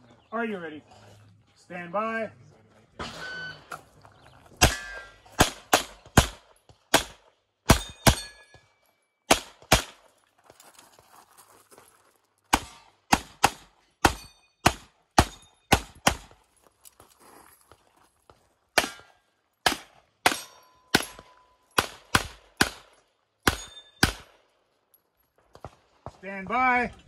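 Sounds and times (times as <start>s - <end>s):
handgun shots: 4.6s - 8.4s, 9.3s - 10.0s, 12.5s - 16.4s, 18.8s - 24.4s.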